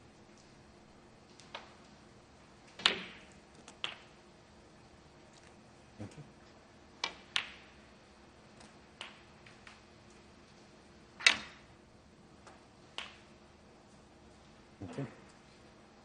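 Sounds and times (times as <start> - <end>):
cue striking snooker ball: 2.7 - 4.1.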